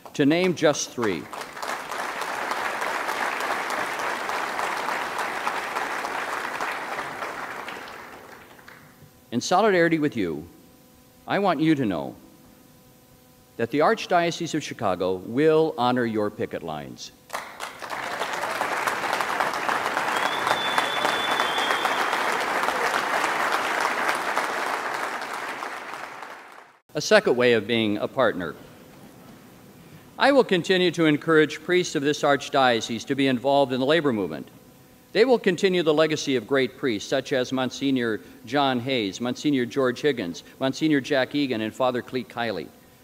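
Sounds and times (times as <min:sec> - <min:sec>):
audience applauding: 0:01.0 - 0:08.8, 0:17.3 - 0:26.8
high steady whistle: 0:19.5 - 0:23.3.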